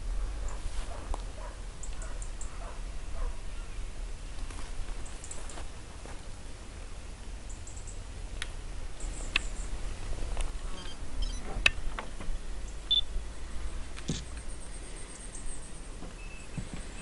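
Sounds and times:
low rumble: 0:00.0 - 0:04.9
small birds chirping: 0:01.3 - 0:03.9, 0:04.6 - 0:05.7, 0:07.4 - 0:08.1, 0:09.0 - 0:09.8, 0:14.1 - 0:17.0.

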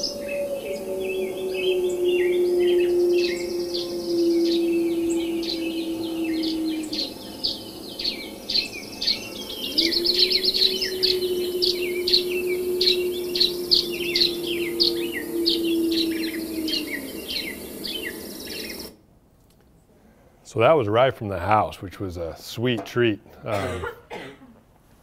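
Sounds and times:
songbirds singing: 0:00.0 - 0:19.0
wolf howling: 0:00.0 - 0:19.0.

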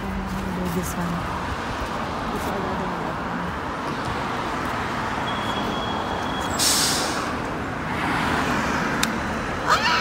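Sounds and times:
street traffic rumbling: 0:00.0 - 0:10.0
bus brakes squealing: 0:05.2 - 0:07.4
air brake hiss: 0:06.5 - 0:07.4.

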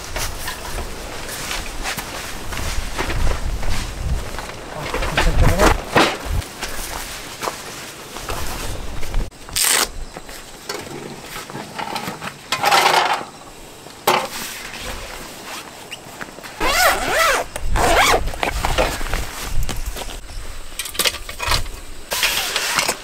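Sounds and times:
zipper being pulled: 0:16.6 - 0:18.2.

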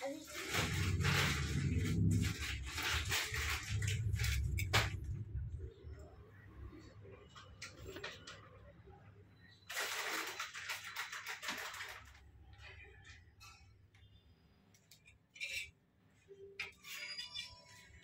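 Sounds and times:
spoon scraping in tray: 0:15.0 - 0:15.8, 0:16.6 - 0:18.0.

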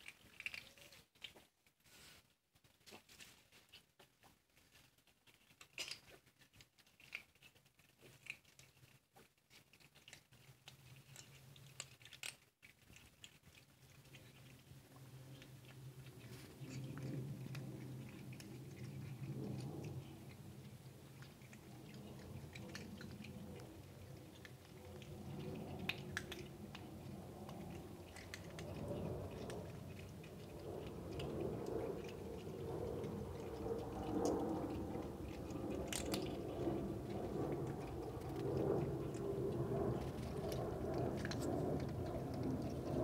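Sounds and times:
kittens crunching dry kibble: 0:00.0 - 0:43.0
low background hum: 0:00.0 - 0:43.0.

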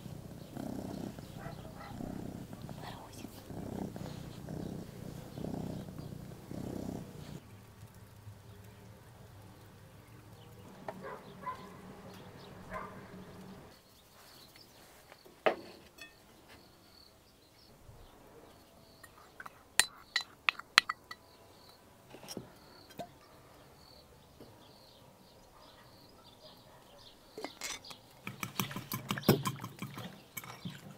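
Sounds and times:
spoon clinking on glass: 0:19.0 - 0:21.3.

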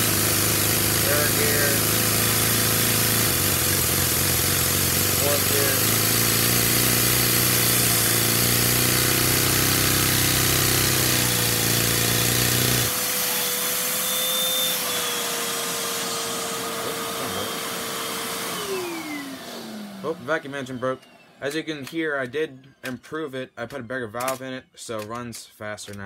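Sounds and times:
small engine chugging: 0:00.0 - 0:12.9
vacuum cleaner whine: 0:00.0 - 0:22.0.

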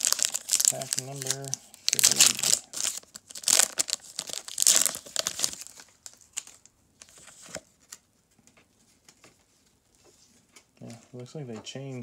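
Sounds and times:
foil wrapper tearing and crinkling: 0:00.0 - 0:07.3
cards rustling and clicking: 0:00.0 - 0:09.4.

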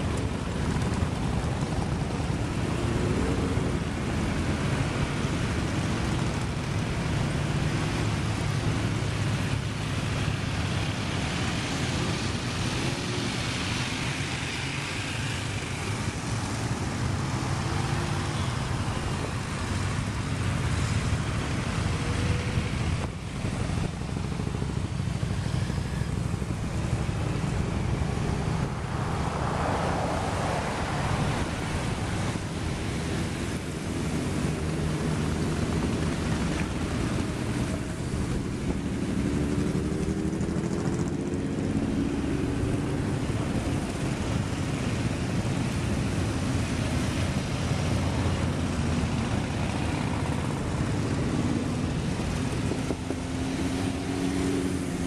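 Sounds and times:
motorcycles passing: 0:00.0 - 0:55.0
wind noise on microphone: 0:30.0 - 0:55.0.

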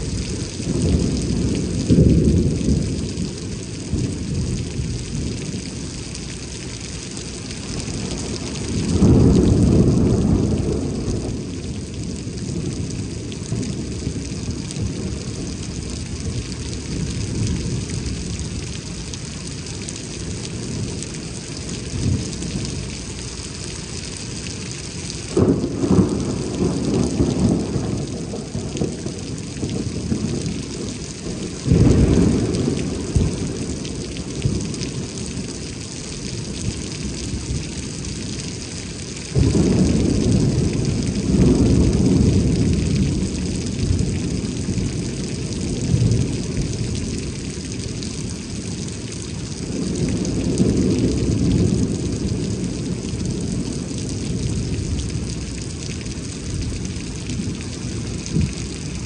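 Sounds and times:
thunder rumbling: 0:00.0 - 0:06.6, 0:07.3 - 0:23.1, 0:24.5 - 0:59.0
heavy rain: 0:00.0 - 0:59.0.

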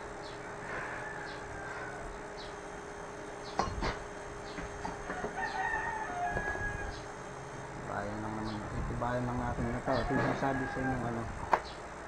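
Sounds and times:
rooster crowing: 0:00.6 - 0:02.2, 0:04.9 - 0:07.2, 0:09.7 - 0:11.3.

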